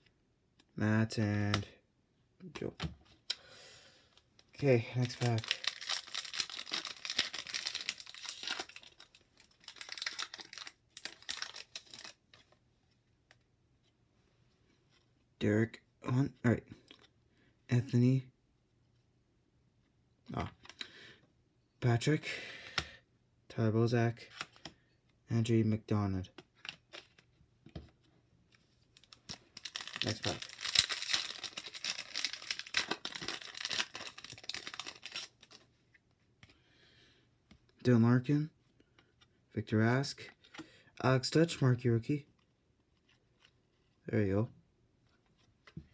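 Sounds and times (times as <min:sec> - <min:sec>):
card pack wrapper crinkling: 0:04.6 - 0:12.5, 0:29.0 - 0:35.7.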